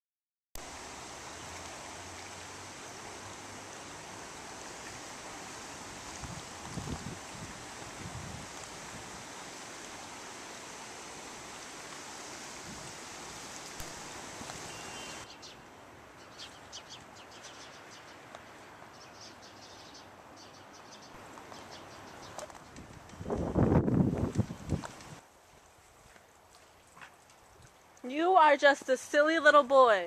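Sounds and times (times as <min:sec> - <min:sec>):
stream water rushing: 0:00.6 - 0:16.2
rustle: 0:00.6 - 0:30.0
small birds chirping: 0:13.8 - 0:15.6, 0:16.2 - 0:23.5.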